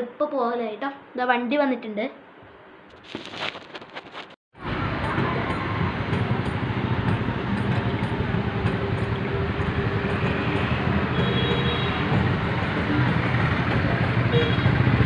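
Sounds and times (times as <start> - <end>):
vehicle engine running: 4.6 - 15.0.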